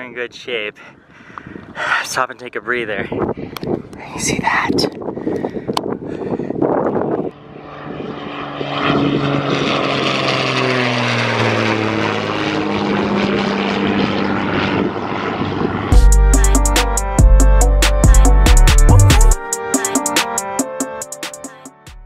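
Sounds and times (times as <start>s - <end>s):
propeller plane flying overhead: 5.0s - 17.3s.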